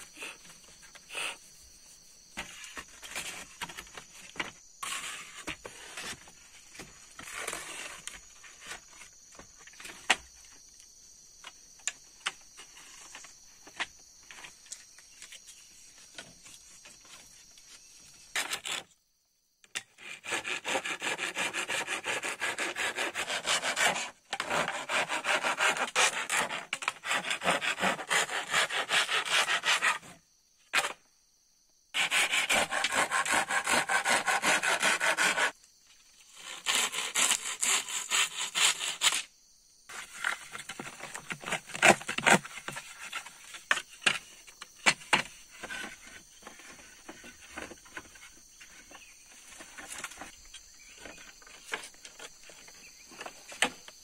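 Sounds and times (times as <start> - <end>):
hand saw cutting bamboo: 4.8 - 6.2, 6.8 - 8.8, 18.4 - 18.8, 20.0 - 30.2, 32.0 - 35.6, 36.3 - 39.3, 39.9 - 43.1.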